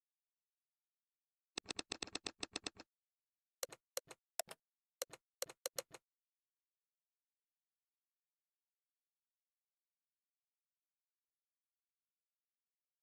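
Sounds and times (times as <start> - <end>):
phone keyboard key clicks: 3.6 - 6.0.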